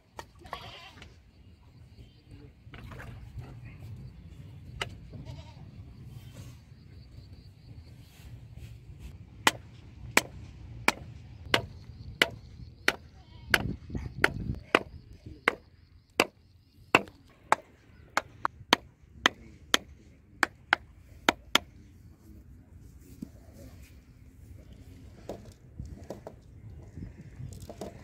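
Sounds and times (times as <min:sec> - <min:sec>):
hammer knocking on wooden stake: 0:09.5 - 0:16.4, 0:17.0 - 0:21.7.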